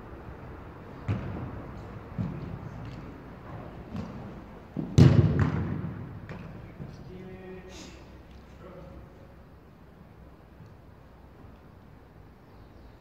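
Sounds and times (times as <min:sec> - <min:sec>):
football kicks thudding in a hall: 0:00.9 - 0:07.5.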